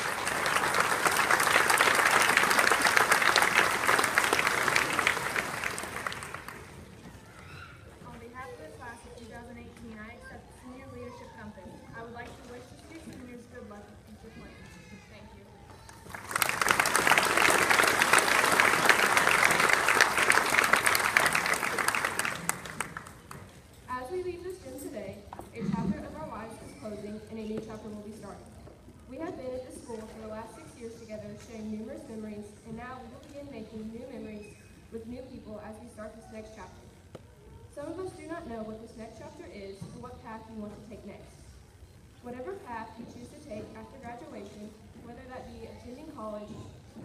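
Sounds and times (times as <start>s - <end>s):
audience applause: 0.0s - 7.0s, 15.9s - 23.5s.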